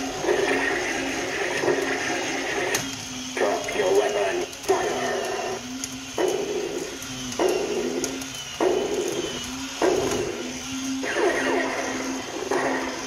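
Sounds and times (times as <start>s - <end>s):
toy robot motor: 0.0s - 13.0s
electronic sound effects: 4.8s - 13.0s.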